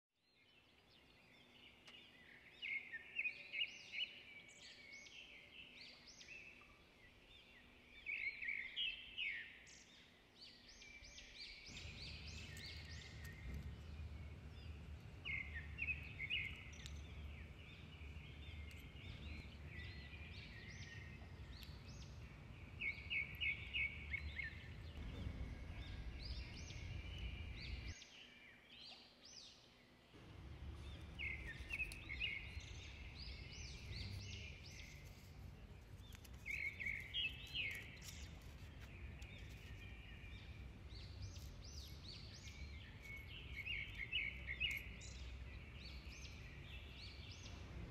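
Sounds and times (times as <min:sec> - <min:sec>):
small birds chirping: 0:00.2 - 0:47.9
low background rumble: 0:11.4 - 0:28.0, 0:30.2 - 0:47.9.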